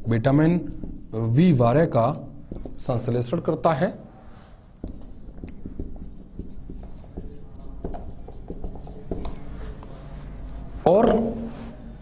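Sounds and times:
marker pen scratching on whiteboard: 0.0s - 1.4s, 2.1s - 3.1s, 4.8s - 11.5s.

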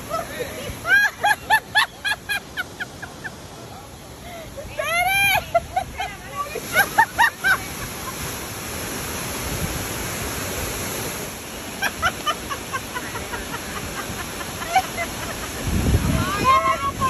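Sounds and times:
waterfall rushing: 0.0s - 17.0s
people talking: 4.6s - 7.8s, 16.0s - 17.0s.

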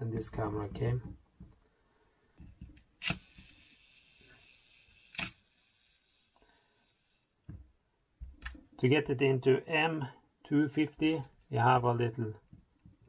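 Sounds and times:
film camera clicking: 3.0s - 4.0s, 5.0s - 5.7s.

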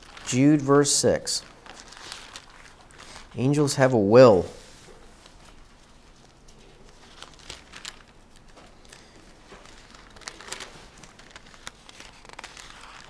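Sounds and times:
thin pages rustling: 1.4s - 3.4s, 4.6s - 13.0s.

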